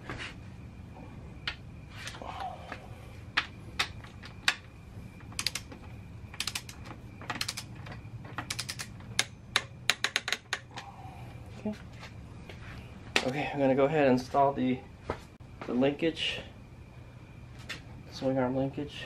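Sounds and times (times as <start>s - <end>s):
ratchet wrench clicking: 6.4s - 6.8s, 8.5s - 10.6s.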